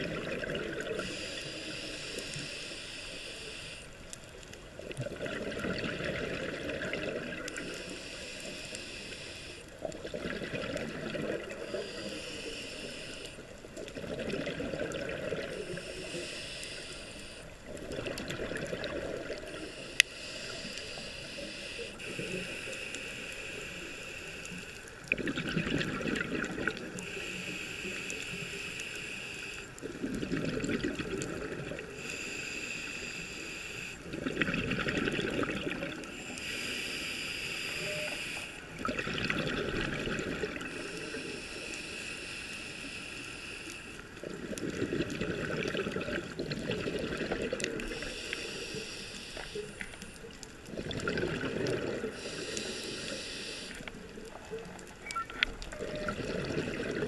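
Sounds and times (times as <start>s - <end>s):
diver breathing through regulator: 0.8s - 4.1s, 7.5s - 9.9s, 11.4s - 25.0s, 26.8s - 30.0s, 31.2s - 34.2s, 35.4s - 38.8s, 40.1s - 45.4s, 46.8s - 50.4s, 51.4s - 54.9s.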